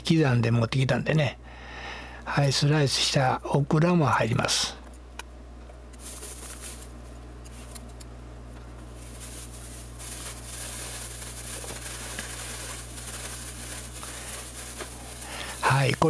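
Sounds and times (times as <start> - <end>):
plastic bag rustling: 6.0 - 7.8, 8.8 - 16.0.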